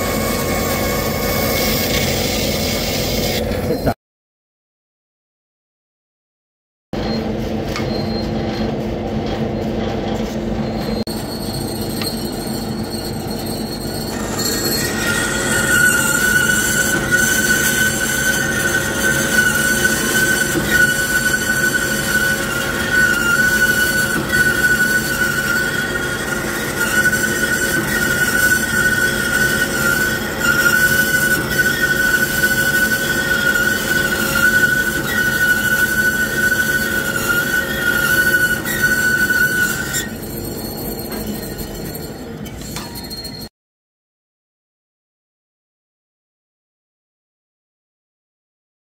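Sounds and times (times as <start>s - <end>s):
band saw humming: 0.0s - 4.0s, 8.1s - 43.5s
high squeal of metal cutting: 0.0s - 4.0s, 7.0s - 43.5s
high-pitched whine: 7.0s - 43.5s.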